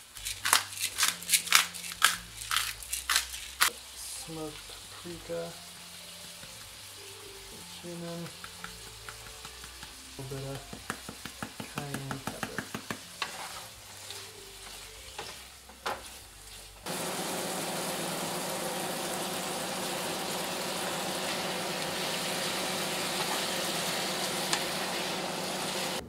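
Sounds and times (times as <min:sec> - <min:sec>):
food sizzling in a skillet: 0:00.0 - 0:26.0
utensil knocking in pan: 0:08.3 - 0:13.4.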